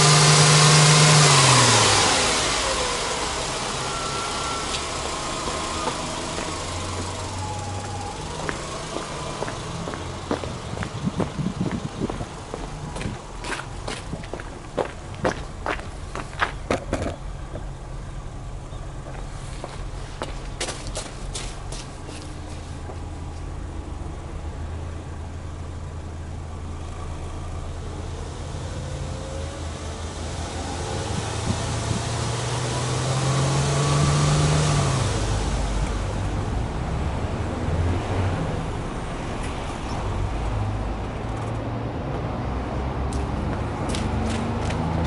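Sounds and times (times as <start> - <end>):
car engine idling: 0.0 - 33.1
light footsteps: 7.8 - 16.8, 19.0 - 23.1.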